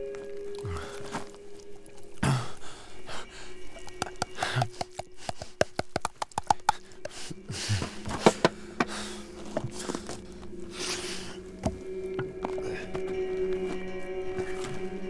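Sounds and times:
low steady hum: 0.0s - 15.0s
heavy breathy gasps: 2.2s - 3.6s, 6.6s - 11.4s.

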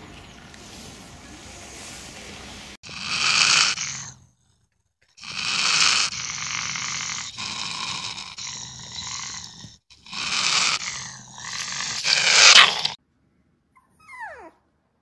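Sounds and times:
fox raspy growling calls: 2.8s - 4.2s, 5.2s - 13.0s.

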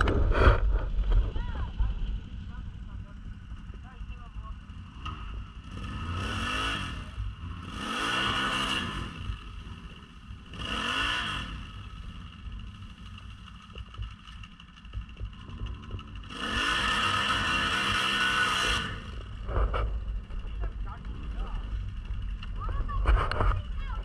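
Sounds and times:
quad engine revving: 0.0s - 24.0s.

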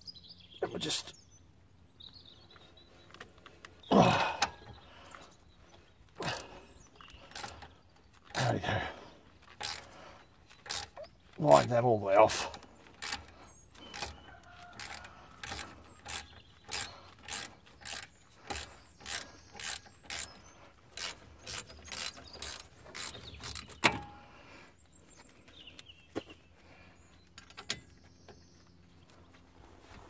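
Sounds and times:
ratchet clicking: 7.2s - 8.4s, 9.5s - 9.9s, 10.5s - 11.1s, 12.3s - 24.0s.

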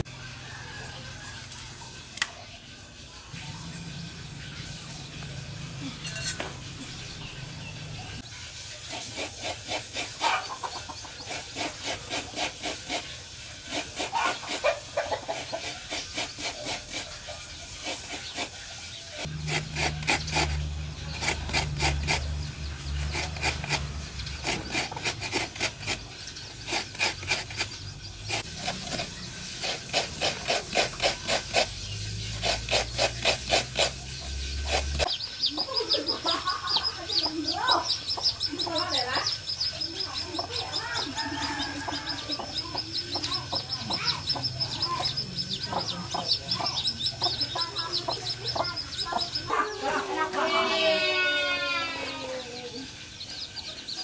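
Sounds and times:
coconut grater rasping: 8.8s - 35.2s.

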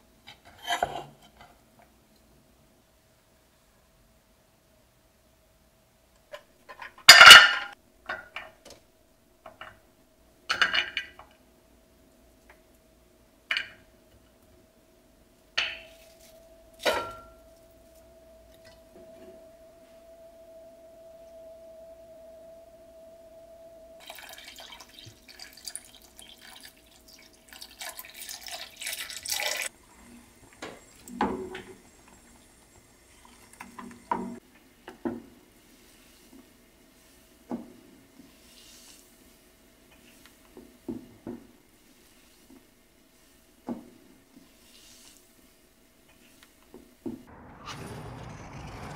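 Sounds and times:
water pouring into pot: 24.0s - 29.7s, 30.4s - 34.2s.

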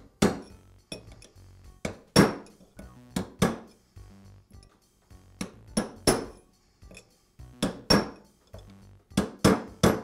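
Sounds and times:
hammer striking metal punch: 0.2s - 1.2s, 1.8s - 2.6s, 5.4s - 7.0s, 7.6s - 8.3s, 9.2s - 10.0s.

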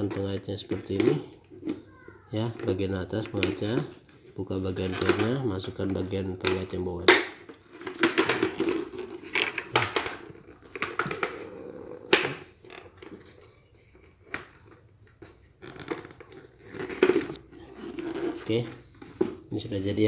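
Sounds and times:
plastic helmet visor clicks and scrapes: 7.4s - 19.4s.

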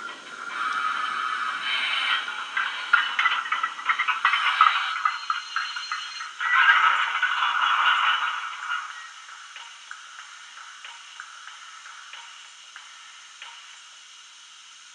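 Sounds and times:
model locomotive chuffs and clanks: 0.0s - 13.8s
steam hiss: 0.0s - 14.9s
faint ticking: 8.6s - 14.1s.

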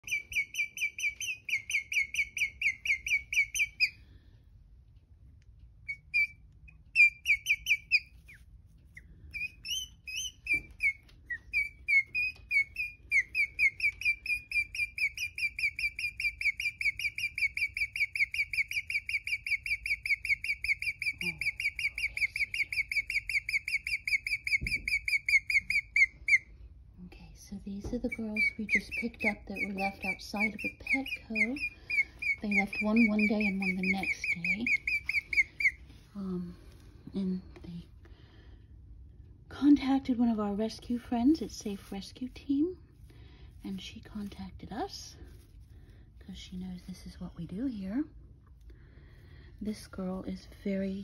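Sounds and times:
guinea pig chirping: 0.0s - 4.0s, 5.8s - 26.5s, 28.0s - 35.8s.

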